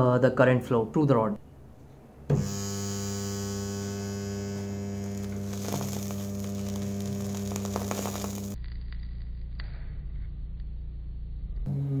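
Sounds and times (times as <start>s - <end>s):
transformer welder humming: 2.3s - 9.9s
welding rod arc crackles: 2.4s - 9.8s.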